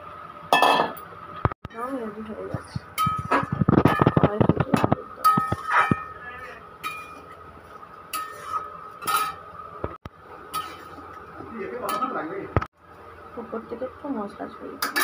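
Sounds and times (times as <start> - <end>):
metal spatula scraping a pan: 8.1 - 9.3, 10.5 - 11.0.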